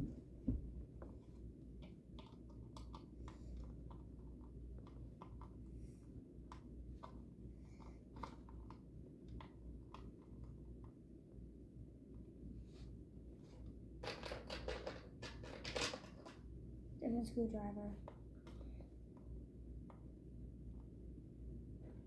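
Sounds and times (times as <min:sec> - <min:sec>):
low room hum: 0:00.0 - 0:22.0
small clicks and taps on plastic: 0:00.5 - 0:05.6, 0:06.4 - 0:11.0, 0:18.0 - 0:20.1.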